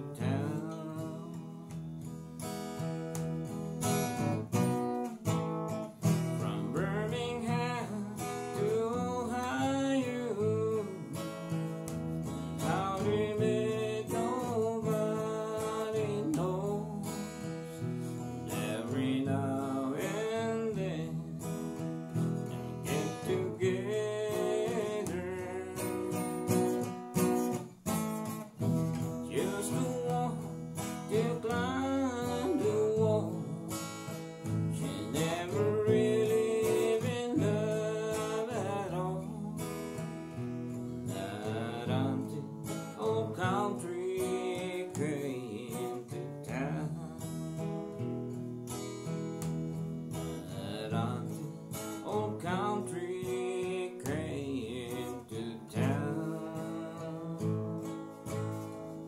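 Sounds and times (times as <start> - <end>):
man singing: 0.0 - 2.6, 6.0 - 27.6, 28.6 - 48.2, 48.8 - 59.0
acoustic guitar country song: 0.0 - 59.0.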